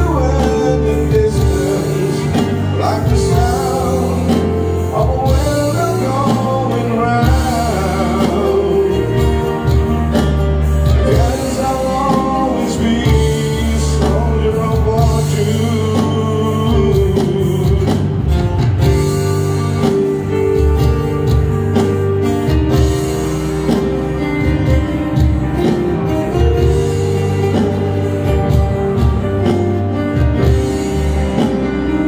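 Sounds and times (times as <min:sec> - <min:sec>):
man singing: 0:00.0 - 0:19.4
acoustic and electric guitar: 0:00.0 - 0:32.0
keyboard: 0:00.0 - 0:32.0
steady bass line: 0:00.0 - 0:32.0.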